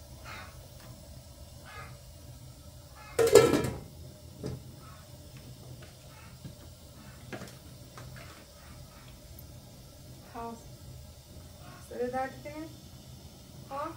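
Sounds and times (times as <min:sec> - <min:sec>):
gas burner humming: 0:00.0 - 0:13.9
metal lid clanging on pot: 0:03.2 - 0:03.9.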